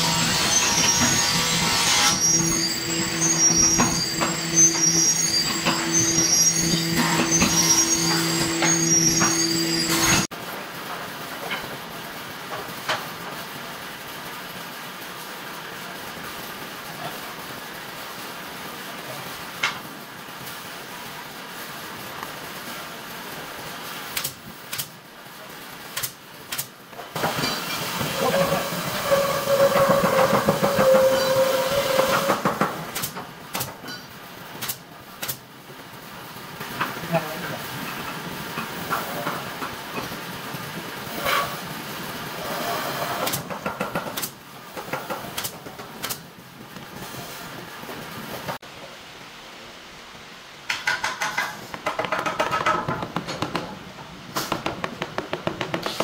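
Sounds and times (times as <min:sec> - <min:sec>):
pneumatic nailer firing: 0:24.1 - 0:25.0, 0:26.0 - 0:27.8, 0:32.1 - 0:33.8, 0:34.6 - 0:35.4, 0:43.1 - 0:44.4, 0:45.1 - 0:46.2, 0:54.3 - 0:56.0
hammer knocking on wood: 0:50.8 - 0:53.7, 0:54.5 - 0:56.0.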